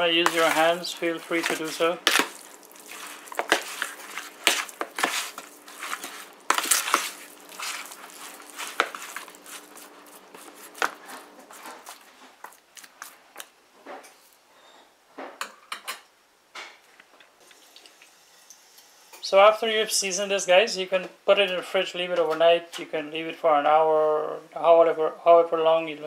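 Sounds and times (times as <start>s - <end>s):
wet squishing of meat: 0.1s - 13.2s.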